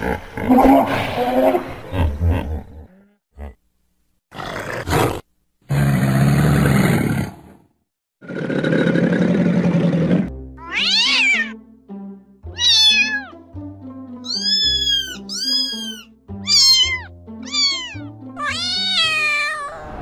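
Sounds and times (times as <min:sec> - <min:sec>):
background music: 0:10.2 - 0:20.0
kitten meowing: 0:10.6 - 0:11.6, 0:12.5 - 0:13.4, 0:14.2 - 0:19.8.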